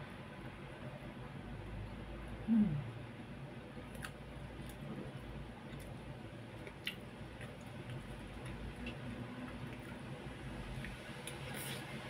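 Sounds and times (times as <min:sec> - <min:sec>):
chewing: 0:03.9 - 0:10.0.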